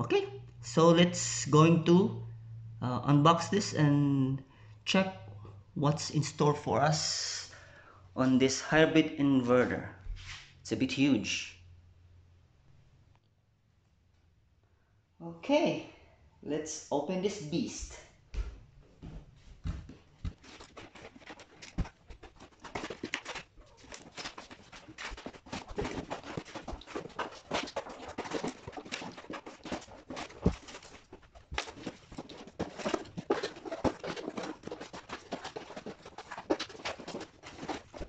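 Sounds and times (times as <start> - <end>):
cardboard box rustling and crinkling: 20.0 - 38.0.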